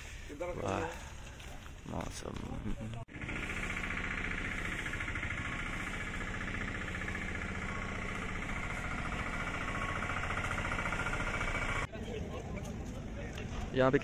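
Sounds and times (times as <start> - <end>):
engine running: 3.0 - 11.9.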